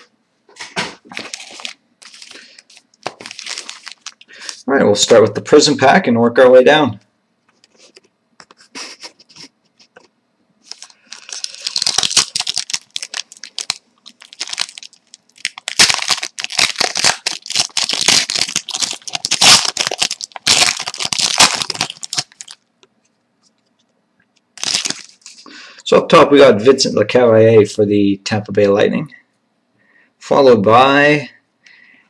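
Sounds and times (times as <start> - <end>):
foil wrapper tearing and crinkling: 1.1 - 4.6, 10.6 - 22.6, 24.6 - 25.5.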